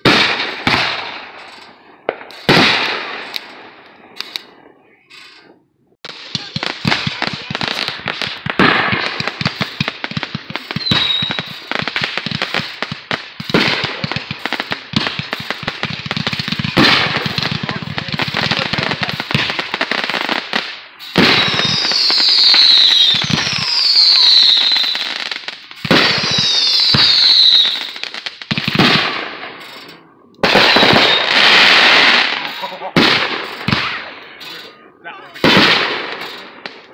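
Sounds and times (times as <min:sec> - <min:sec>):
fireworks pops and crackles: 0:00.0 - 0:36.9
loud firework bursts: 0:00.0 - 0:36.9
falling firework whistle: 0:10.6 - 0:11.7, 0:21.0 - 0:25.2, 0:25.9 - 0:28.0.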